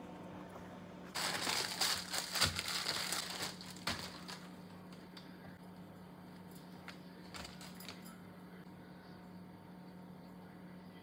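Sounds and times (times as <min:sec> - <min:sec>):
faint low hum: 0:00.0 - 0:11.0
plastic wrapping crinkling: 0:01.1 - 0:04.7.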